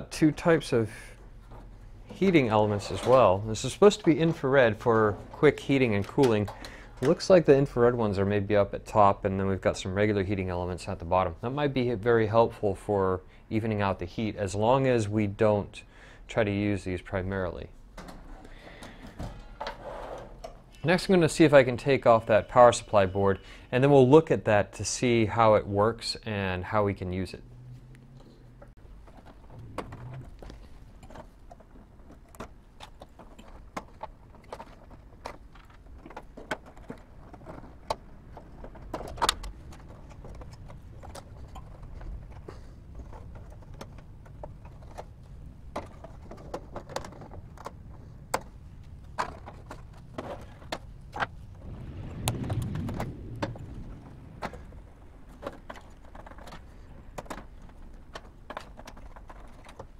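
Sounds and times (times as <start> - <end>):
metal and plastic clicks: 28.2 - 51.4.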